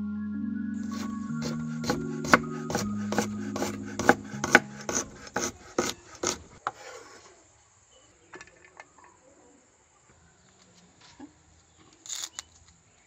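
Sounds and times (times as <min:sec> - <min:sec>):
soft background music: 0:00.0 - 0:05.4
knife slicing on wooden board: 0:00.8 - 0:07.0.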